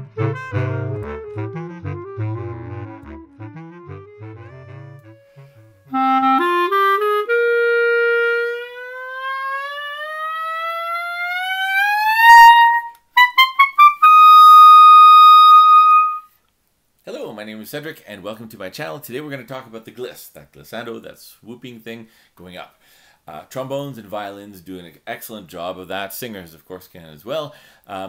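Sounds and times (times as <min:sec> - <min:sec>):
clarinet glissando: 0:00.0 - 0:16.3.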